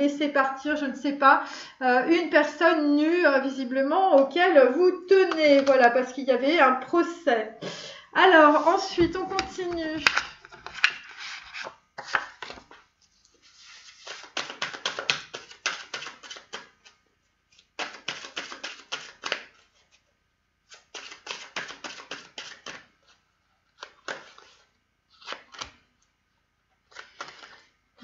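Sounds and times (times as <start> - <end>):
cards being shuffled: 9.2 - 12.8, 13.4 - 20.0, 20.7 - 23.2, 23.8 - 25.8, 26.9 - 28.0.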